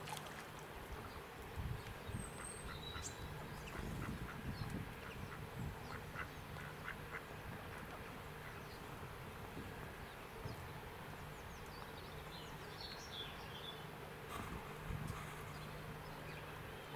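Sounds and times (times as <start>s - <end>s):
small birds chirping: 1.0s - 9.0s, 9.9s - 16.9s
ducks calling: 2.3s - 8.8s.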